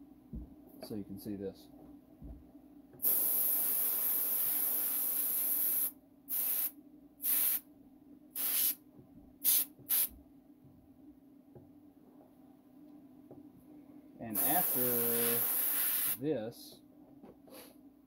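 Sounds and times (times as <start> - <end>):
spray paint hissing: 3.0 - 7.6, 8.4 - 8.8, 9.4 - 10.1, 14.4 - 16.2.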